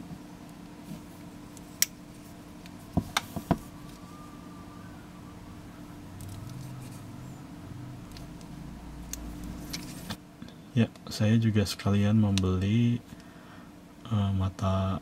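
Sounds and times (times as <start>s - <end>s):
faint steady hum: 0.0s - 15.0s
cord handling noise: 6.2s - 7.0s, 8.0s - 10.2s.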